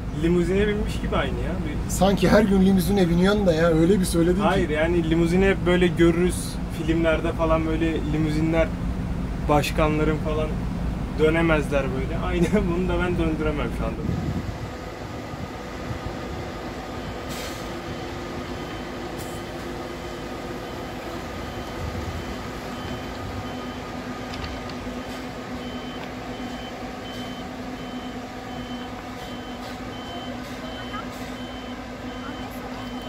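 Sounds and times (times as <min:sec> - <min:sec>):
diesel engine running: 0:00.0 - 0:33.0
reverse warning alarm beeping: 0:16.9 - 0:33.0
air hissing: 0:17.2 - 0:17.8.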